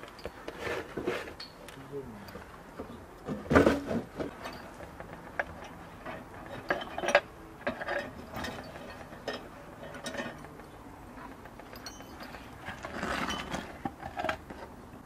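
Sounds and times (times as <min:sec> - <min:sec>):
chain clinking against metal tray: 0:11.6 - 0:14.3.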